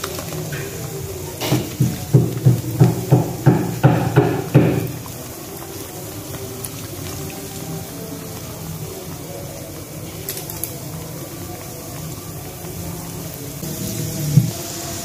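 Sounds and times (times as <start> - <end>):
oil sizzling: 0.0 - 15.0
fork knocking on wok: 1.4 - 5.0.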